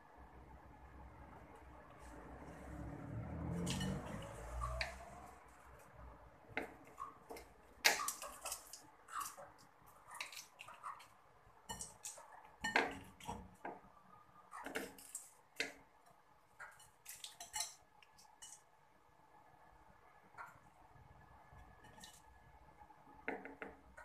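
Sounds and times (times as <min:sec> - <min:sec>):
knife scraping a ceramic plate: 0:16.7 - 0:17.8, 0:21.8 - 0:22.2.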